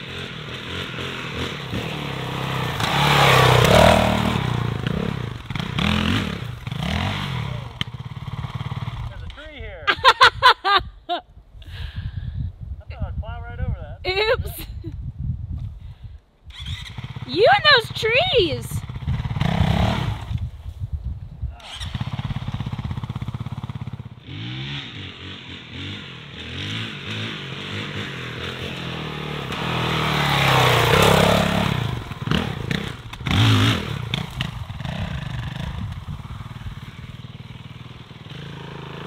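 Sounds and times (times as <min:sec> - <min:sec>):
motorcycle engine revving: 0:00.0 - 0:09.4, 0:16.5 - 0:20.5, 0:21.6 - 0:39.0.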